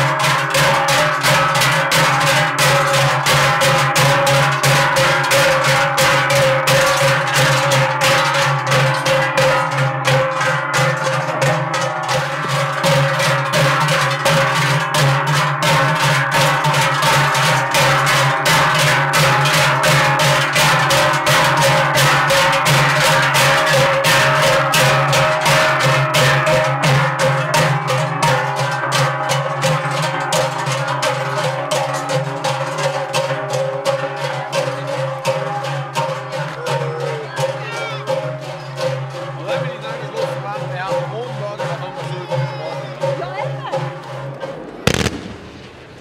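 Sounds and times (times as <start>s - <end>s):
ringing drone of bells: 0.0s - 44.0s
large cowbells clanging: 0.0s - 46.0s.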